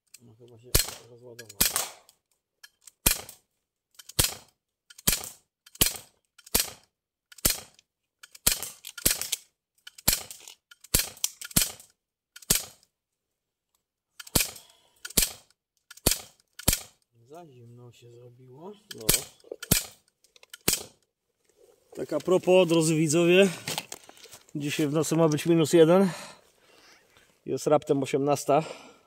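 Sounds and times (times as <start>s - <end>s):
bb pistol shots: 0.7s - 2.1s, 3.0s - 3.4s, 4.0s - 12.8s, 14.2s - 17.0s, 18.9s - 21.0s.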